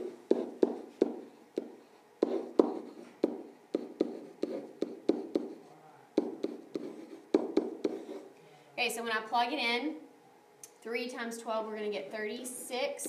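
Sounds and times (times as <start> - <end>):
stylus tapping on glass screen: 6.2 - 8.0.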